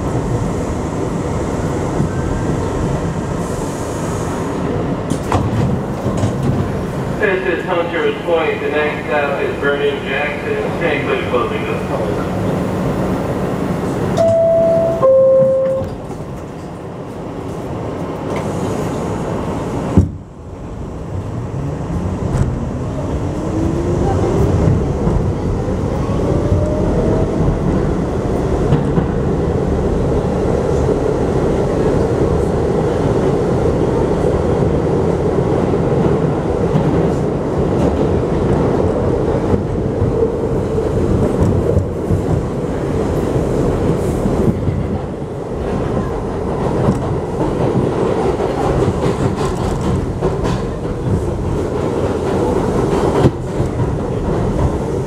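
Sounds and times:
train wheels rumbling on rails: 0.0 - 55.0
two-note door chime: 14.2 - 15.9.

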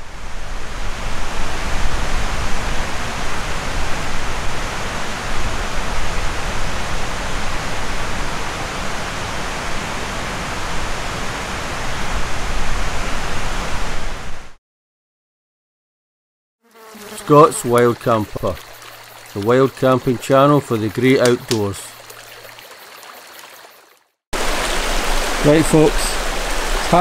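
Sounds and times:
rushing outdoor hiss: 16.9 - 23.4, 24.4 - 27.0.

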